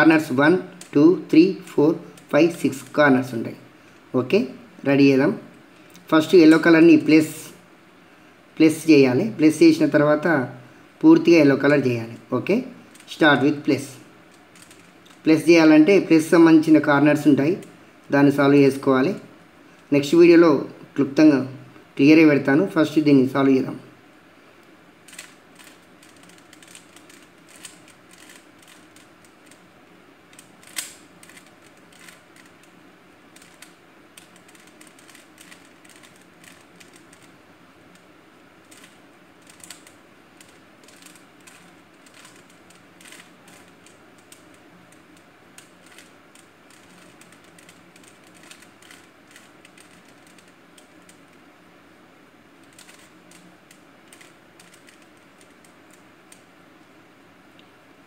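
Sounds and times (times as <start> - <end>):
puzzle cube layers clicking: 1.6 - 3.0, 14.4 - 15.2, 25.1 - 29.6, 30.3 - 37.3, 38.0 - 51.4, 52.6 - 56.5.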